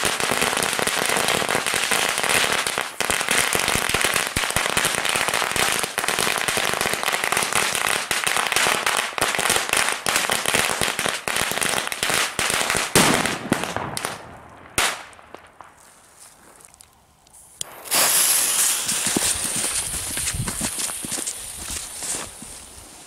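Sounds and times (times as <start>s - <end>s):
firecrackers crackling: 0.0s - 23.0s.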